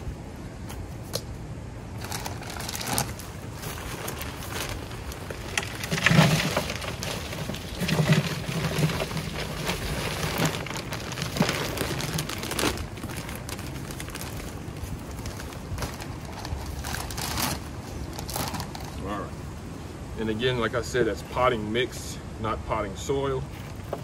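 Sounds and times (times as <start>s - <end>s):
potting mix pouring from plastic bag: 2.0s - 19.1s.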